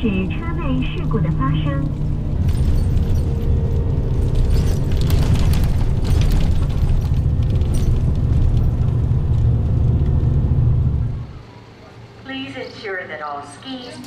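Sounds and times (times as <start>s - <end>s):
bus engine and tyres rumbling: 0.0s - 14.0s
light clicks and rattles: 1.8s - 10.8s.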